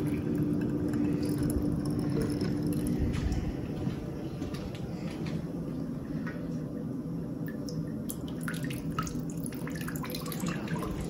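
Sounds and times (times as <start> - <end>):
steady low hum: 0.0 - 11.0
water running into container: 7.5 - 11.0.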